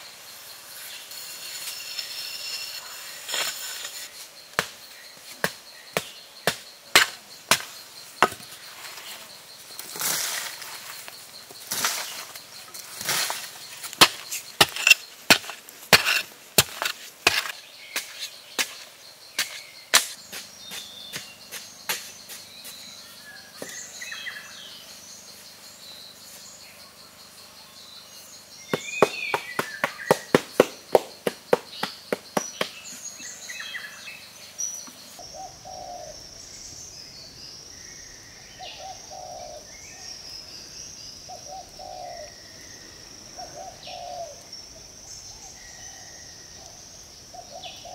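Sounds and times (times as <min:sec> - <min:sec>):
insects buzzing: 0:00.0 - 0:47.9
digging stick thudding into soil: 0:13.0 - 0:18.8
birds calling: 0:28.4 - 0:44.5.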